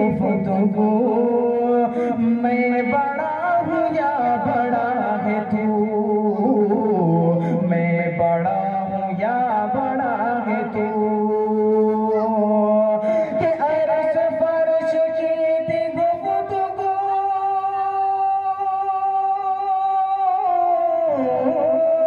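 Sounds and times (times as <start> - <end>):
man singing into microphone: 0.0 - 22.0.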